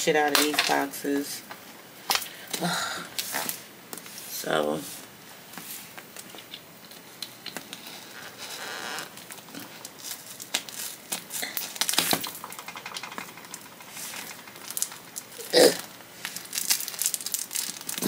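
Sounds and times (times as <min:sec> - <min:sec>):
wrapping crinkling and tearing: 0:06.1 - 0:18.0.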